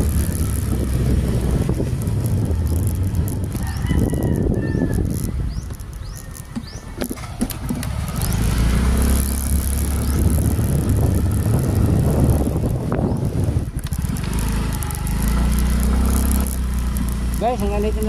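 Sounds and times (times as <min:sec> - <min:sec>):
motorcycle engine rumble: 0:00.0 - 0:18.0
wind on microphone: 0:00.0 - 0:18.0
knocks from rough road: 0:05.0 - 0:12.7, 0:13.8 - 0:17.6.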